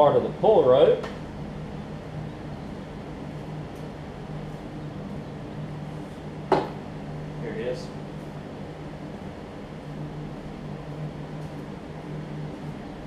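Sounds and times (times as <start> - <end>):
low mechanical hum: 0.0 - 13.0
short sharp knock: 6.5 - 6.8.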